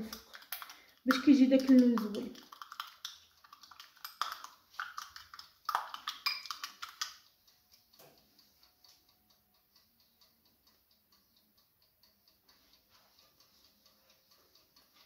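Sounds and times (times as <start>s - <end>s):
pastry brush tapping: 0.0s - 7.2s.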